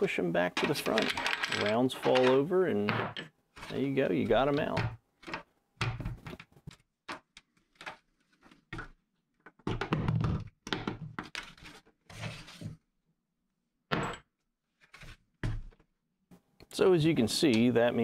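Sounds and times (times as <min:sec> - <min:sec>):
plastic board knocks and clatter: 0:08.7 - 0:11.4.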